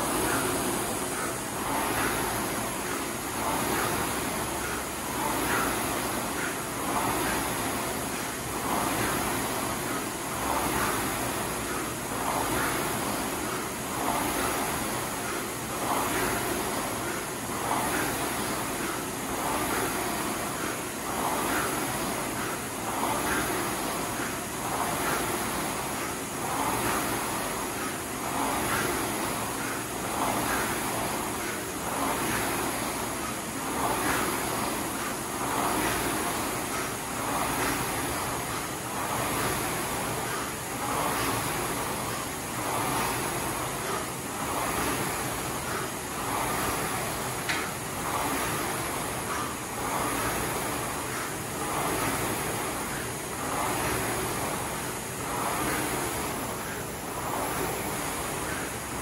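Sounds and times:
rowing machine flywheel whirring: 0:00.0 - 0:59.0.

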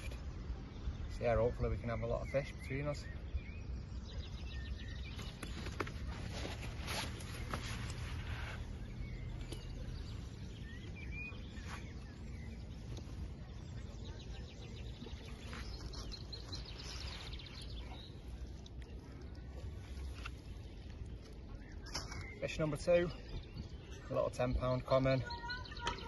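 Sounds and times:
bird chirp: 0:00.0 - 0:26.0
handling clicks and rustles: 0:05.1 - 0:08.6.

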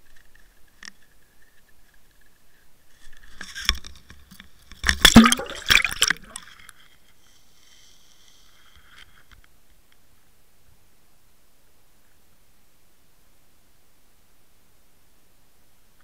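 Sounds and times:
faint hiss: 0:00.0 - 0:16.0
water splashing and bubbling: 0:04.9 - 0:06.4.

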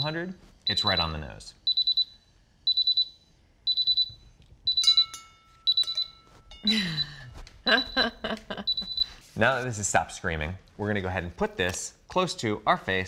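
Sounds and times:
carbon monoxide alarm beeping: 0:00.0 - 0:09.2
clink with short ring: 0:04.8 - 0:06.7.

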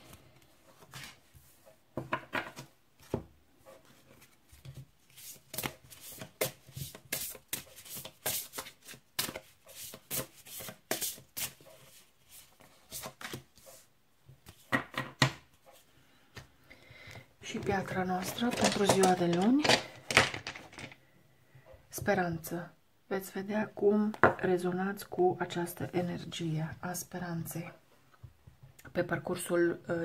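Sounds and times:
cards being shuffled: 0:03.9 - 0:13.8, 0:18.0 - 0:21.0.

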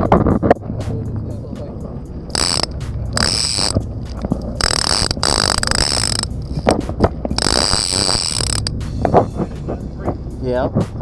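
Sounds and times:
fishing reel drag buzzing: 0:02.3 - 0:08.8.

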